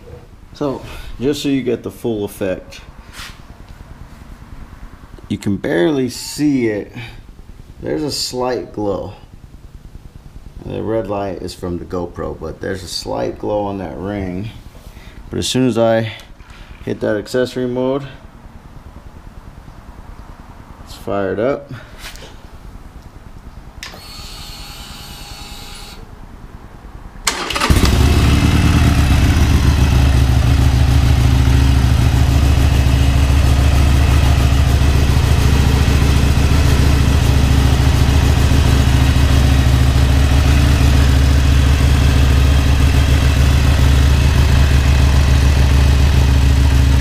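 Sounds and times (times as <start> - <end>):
motorcycle engine cranking: 27.2 - 30.4
motorcycle engine idling: 27.4 - 47.0.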